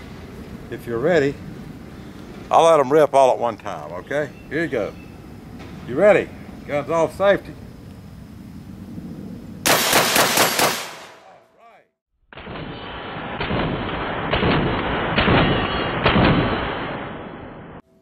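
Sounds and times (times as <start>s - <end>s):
shotgun shots in rapid string: 9.7s - 11.3s, 12.4s - 17.8s.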